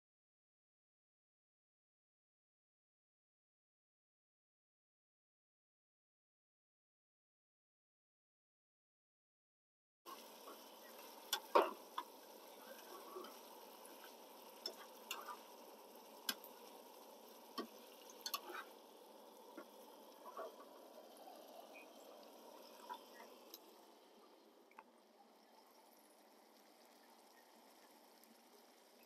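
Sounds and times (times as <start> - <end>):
food sizzling in a pan: 10.1 - 24.5.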